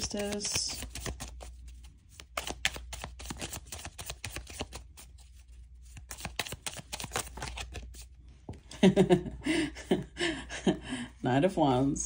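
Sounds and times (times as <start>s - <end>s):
cards being shuffled: 0.0s - 8.1s.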